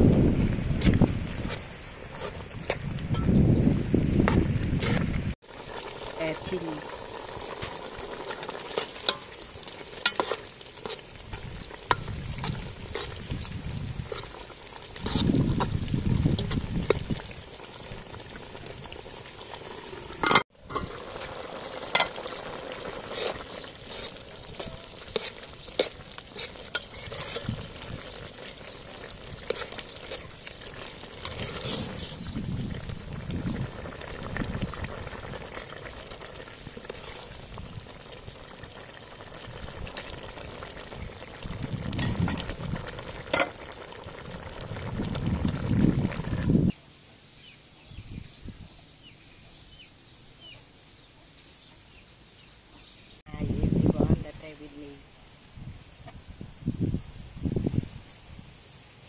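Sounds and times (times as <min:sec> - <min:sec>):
soup boiling in a pot: 0:04.5 - 0:46.8.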